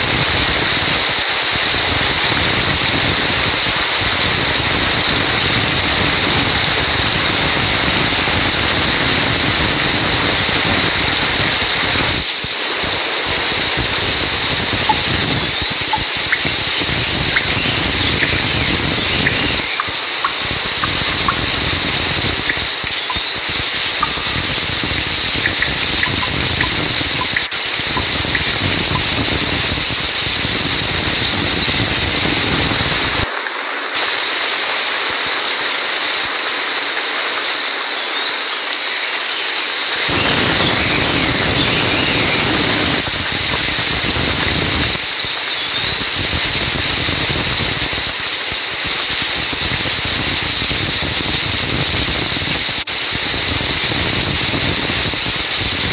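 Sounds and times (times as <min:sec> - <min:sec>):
heavy rain on leaves: 0:00.0 - 0:55.9
faint high chirps: 0:14.6 - 0:29.6.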